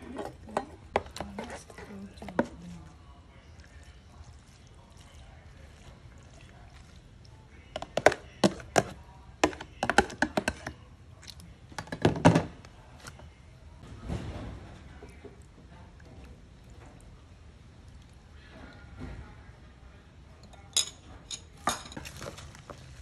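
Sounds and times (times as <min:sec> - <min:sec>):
metal utensil scraping plastic container: 0:00.0 - 0:02.5.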